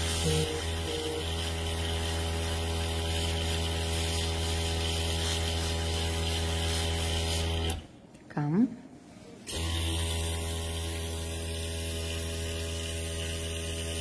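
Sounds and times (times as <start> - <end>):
airbrush air hissing: 0.0 - 7.8
airbrush compressor humming: 0.0 - 7.8, 9.5 - 14.0.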